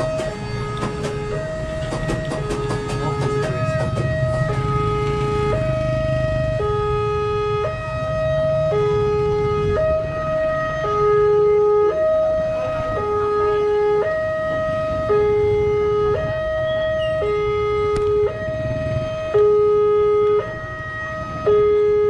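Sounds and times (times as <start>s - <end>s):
level crossing alarm two-tone: 16.4s - 17.8s.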